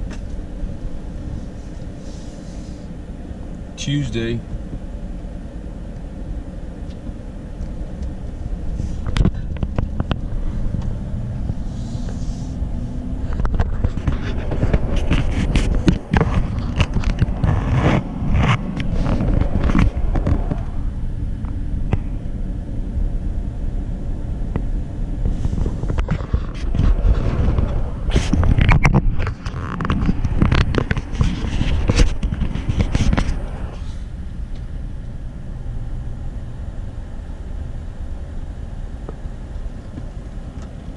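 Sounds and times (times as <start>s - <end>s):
car road rumble: 0.0s - 40.9s
crackling and scraping: 6.8s - 22.5s, 24.5s - 35.2s.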